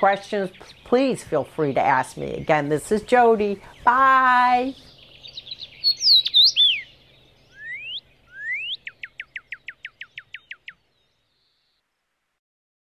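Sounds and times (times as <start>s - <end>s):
songbird chirps and whistles: 4.7s - 11.8s.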